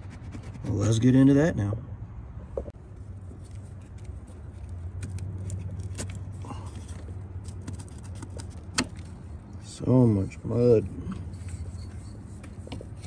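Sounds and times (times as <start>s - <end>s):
tools clicking and scraping: 3.4s - 9.3s, 11.0s - 13.0s.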